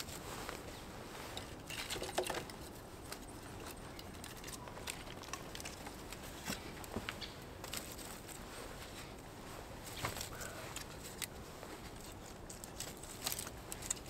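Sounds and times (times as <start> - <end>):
sticks clicking and knocking: 1.3 - 8.3, 10.0 - 11.4, 12.0 - 14.0.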